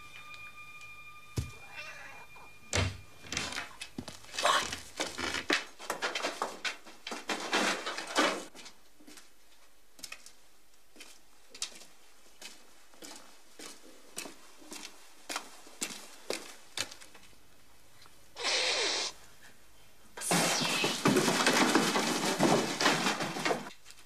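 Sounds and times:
scraping and knocking: 0:04.7 - 0:08.5, 0:20.3 - 0:23.7.

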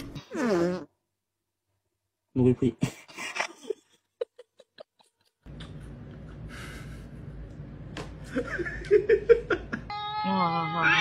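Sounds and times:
low steady hum: 0:05.5 - 0:09.9.

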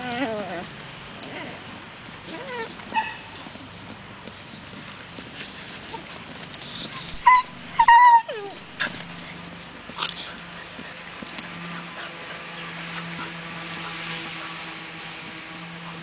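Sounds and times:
dog squealing and whining: 0:02.3 - 0:03.4, 0:04.3 - 0:09.1.

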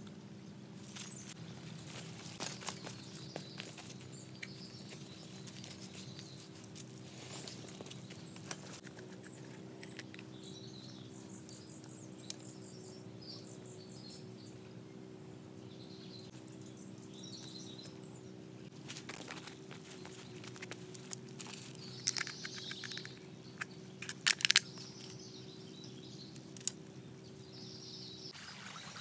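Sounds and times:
birds chirping: 0:00.0 - 0:29.0
bamboo sticks clicking: 0:22.0 - 0:23.2, 0:24.0 - 0:25.2.

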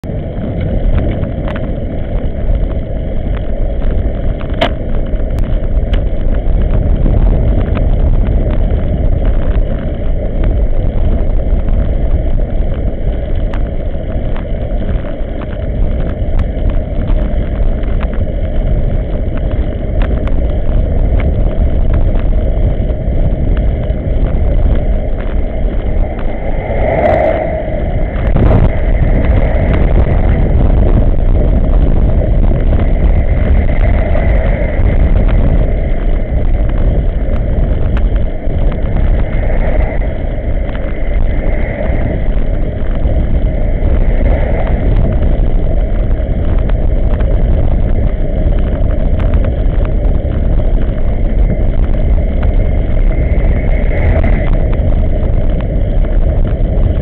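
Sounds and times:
wind rushing over microphone: 0:00.0 - 0:57.0
small clicks and knocks: 0:03.3 - 0:06.8.

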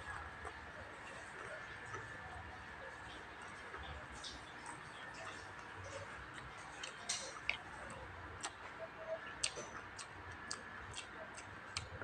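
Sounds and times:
person chewing: 0:06.3 - 0:08.7, 0:09.4 - 0:12.0.

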